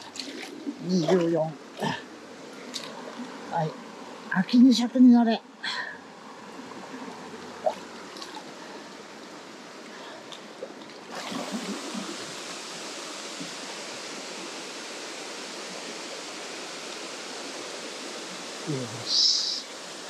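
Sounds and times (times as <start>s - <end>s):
faint knocks and splashes: 0.0s - 2.0s, 7.6s - 8.6s
stream running over stones: 0.0s - 20.0s
small waterfall rushing: 5.6s - 20.0s.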